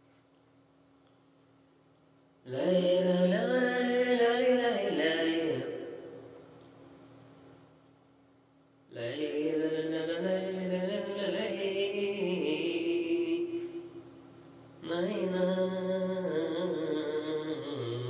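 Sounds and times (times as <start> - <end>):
man singing into microphone: 2.5 - 6.2, 8.9 - 13.9, 14.8 - 18.0.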